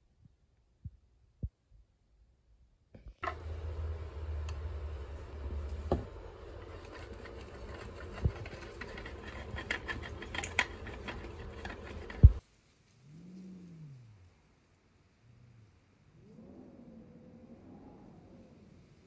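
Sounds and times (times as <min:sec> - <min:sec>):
wooden parts clicking and knocking: 0:06.6 - 0:12.4.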